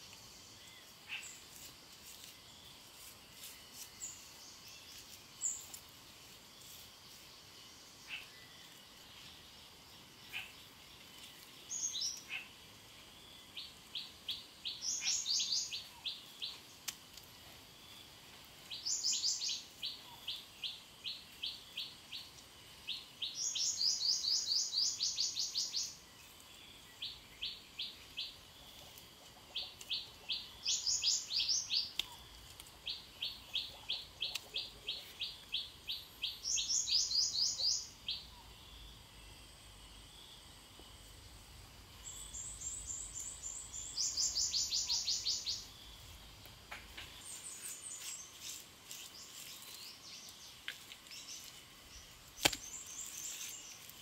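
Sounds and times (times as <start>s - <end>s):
bird singing high chirps: 14.3s - 16.5s, 18.8s - 20.8s, 33.2s - 38.9s, 42.0s - 45.8s.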